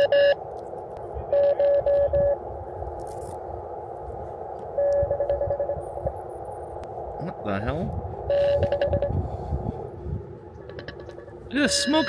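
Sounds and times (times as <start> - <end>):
short radio beeps: 1.3 - 2.4, 4.8 - 5.8, 8.3 - 9.1, 10.7 - 12.0
radio receiver hiss: 7.3 - 9.1.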